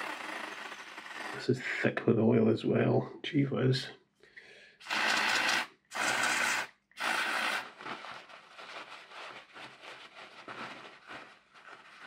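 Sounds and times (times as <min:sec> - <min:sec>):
paper tissue rustling: 0:07.4 - 0:12.0.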